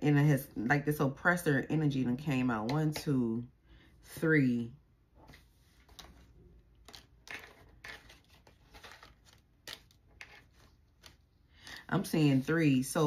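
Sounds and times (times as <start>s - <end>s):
cards rustling and flicking: 5.6s - 12.6s.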